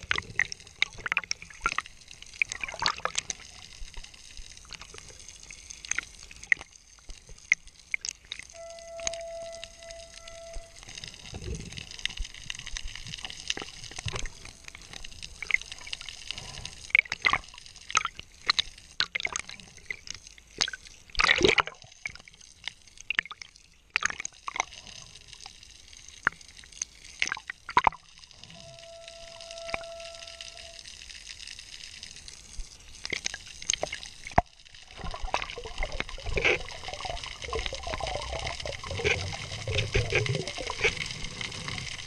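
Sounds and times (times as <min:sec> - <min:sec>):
underwater hiss with clicks: 0:00.0 - 0:20.9, 0:24.2 - 0:42.0
watery rush: 0:33.1 - 0:42.0.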